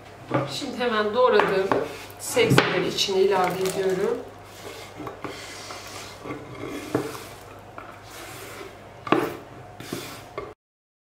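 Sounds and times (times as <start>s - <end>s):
vegetables scraping over wooden board: 3.4s - 10.4s.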